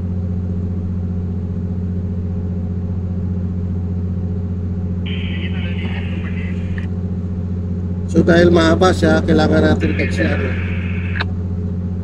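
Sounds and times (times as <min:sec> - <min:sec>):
diesel machinery drone: 0:05.0 - 0:12.0.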